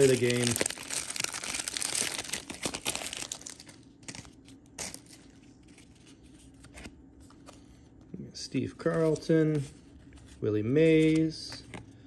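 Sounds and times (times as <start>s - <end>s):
wrapper crinkling as torn open: 0.0s - 5.3s
cards rustling and tapping: 8.8s - 11.9s.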